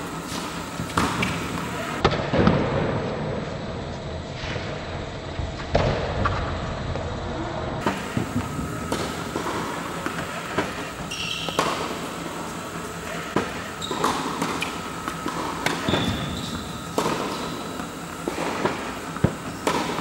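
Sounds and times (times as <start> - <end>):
tennis balls bouncing on court: 0.2 - 2.1, 7.8 - 20.0
tennis balls struck by rackets: 0.2 - 2.2, 7.8 - 20.0.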